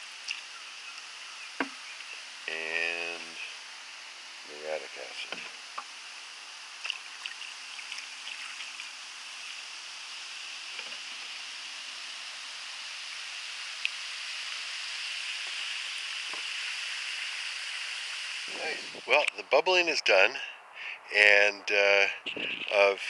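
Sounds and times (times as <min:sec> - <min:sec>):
acid fizzing: 0:06.6 - 0:19.3.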